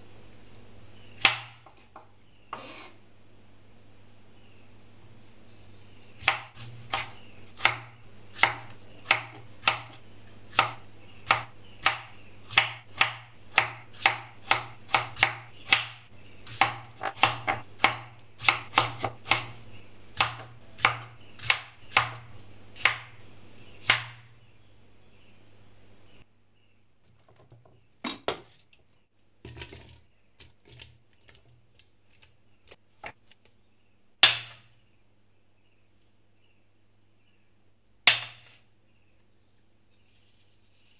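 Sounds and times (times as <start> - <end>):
faint low hum: 0.0 - 40.9
knife chopping on wooden board: 1.2 - 1.8, 6.2 - 19.6, 20.2 - 23.2, 23.8 - 24.3, 38.1 - 38.6.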